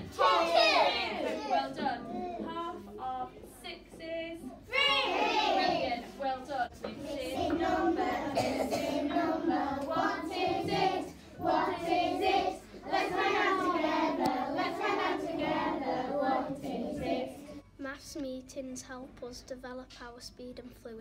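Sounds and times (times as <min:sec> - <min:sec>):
children singing in unison: 0:00.0 - 0:02.8, 0:04.7 - 0:06.2, 0:06.8 - 0:17.6.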